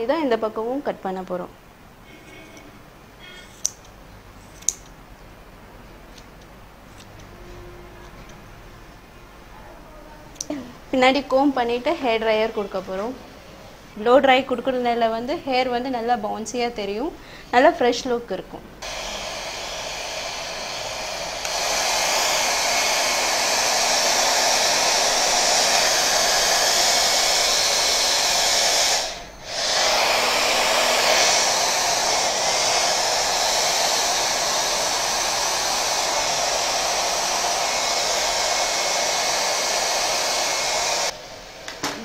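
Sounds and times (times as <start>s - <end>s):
hair dryer blowing: 18.8s - 42.0s.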